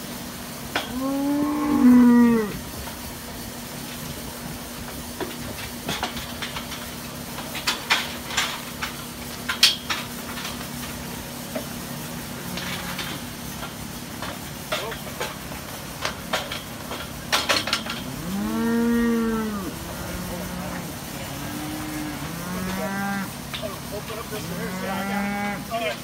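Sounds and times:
electric fan humming: 0.0s - 26.0s
cow mooing: 0.9s - 2.6s, 18.0s - 23.4s, 24.4s - 25.7s
metal clanks and rattles: 4.8s - 18.4s.

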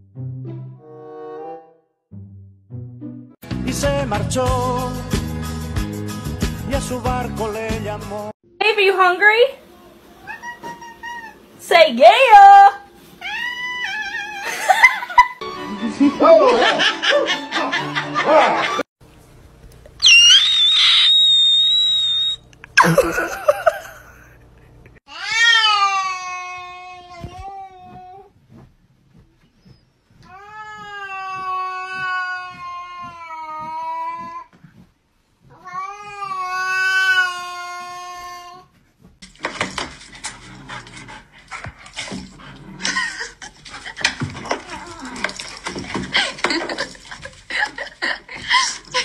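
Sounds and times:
shrill high squeal: 20.0s - 22.4s
short wavering cry: 20.0s - 23.0s
dog panting: 39.5s - 48.6s.

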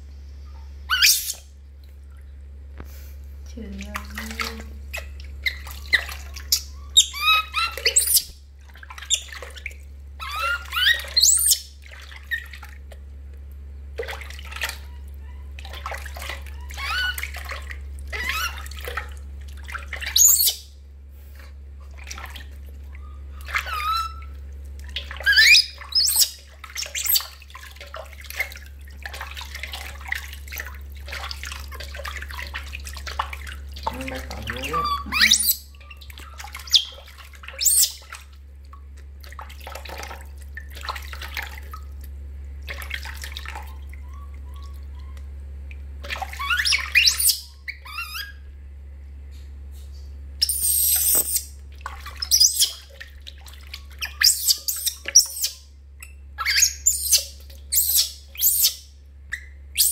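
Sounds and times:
baby monkey squealing: 0.9s - 1.4s, 4.9s - 8.4s, 9.0s - 9.6s, 10.2s - 11.7s, 16.5s - 17.4s, 18.1s - 18.8s, 20.0s - 20.7s, 22.9s - 24.3s, 25.2s - 27.4s, 33.9s - 38.1s, 46.2s - 48.4s, 50.4s - 51.5s, 52.2s - 52.9s, 54.0s - 59.9s
water splashing in metal basin: 3.6s - 20.8s, 21.8s - 48.3s, 50.4s - 55.8s, 56.4s - 59.0s.

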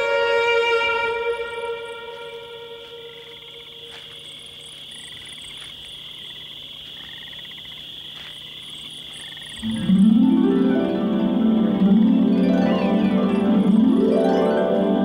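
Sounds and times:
insect drone: 0.0s - 15.0s
pulsing frog trills: 0.0s - 15.0s
plucked-string music: 9.6s - 15.0s.

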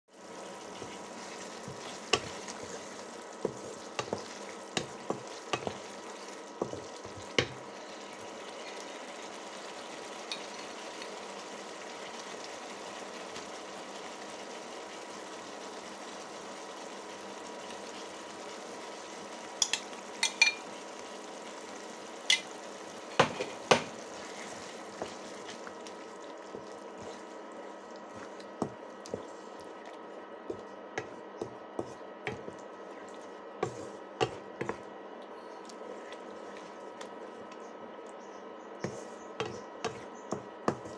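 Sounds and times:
paste sizzling in oil: 0.1s - 29.6s
wooden spatula knocking on pan: 6.6s - 7.6s, 23.1s - 24.0s, 28.6s - 28.8s.

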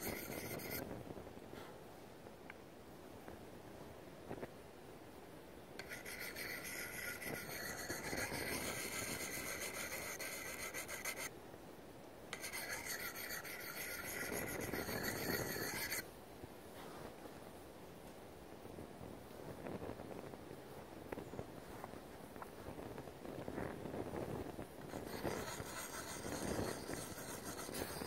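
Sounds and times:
sharpening stone rasping on blade: 5.8s - 11.3s, 12.4s - 16.0s, 24.9s - 28.0s.

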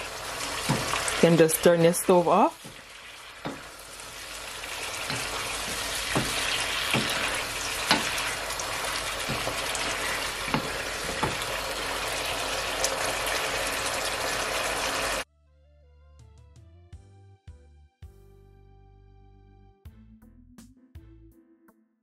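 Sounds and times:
gravy sizzling and bubbling in a pan: 0.0s - 15.2s
plastic spoon knocking on a pan: 0.6s - 1.0s, 2.6s - 3.8s, 5.0s - 8.4s, 9.2s - 11.6s.

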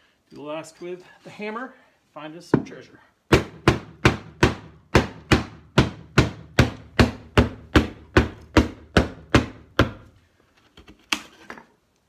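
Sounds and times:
hammer striking wood: 3.3s - 10.1s.

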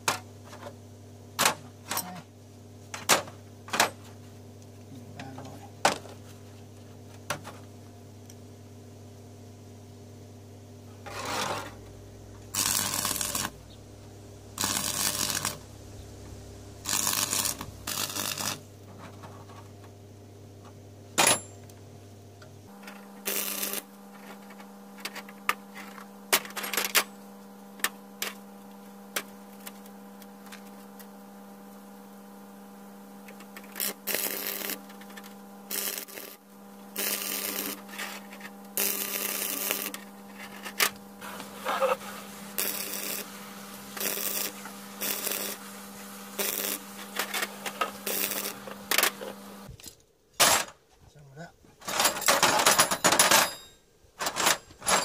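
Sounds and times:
steady electrical hum: 0.0s - 55.0s
crackling welding arc: 11.0s - 18.8s, 22.7s - 49.8s.

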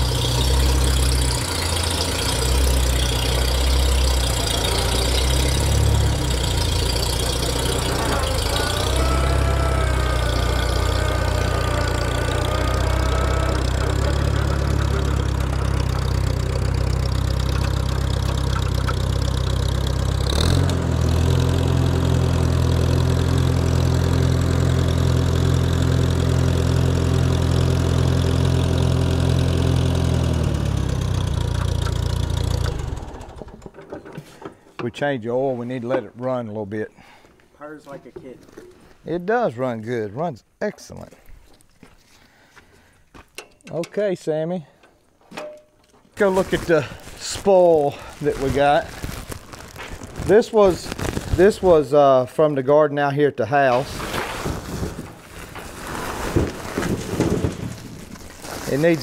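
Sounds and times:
tractor engine idling: 0.0s - 34.9s.

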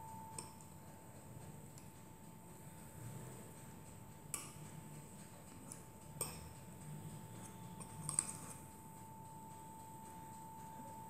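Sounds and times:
fork tines clicking on ceramic dish: 4.2s - 6.7s, 7.4s - 8.8s.

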